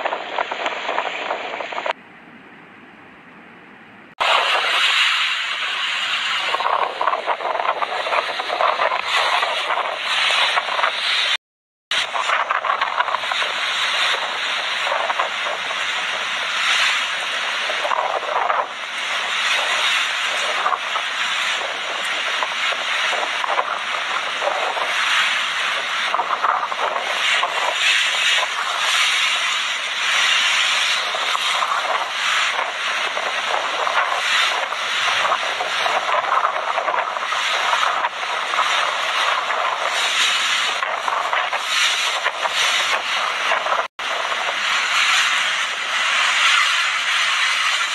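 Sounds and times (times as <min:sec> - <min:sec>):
gusting wind: 0:00.0 - 0:47.9.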